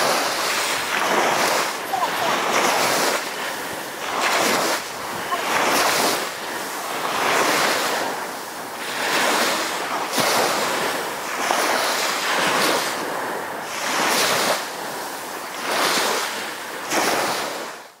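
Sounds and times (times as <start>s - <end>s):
waves washing onto sandy beach: 0.0s - 18.0s.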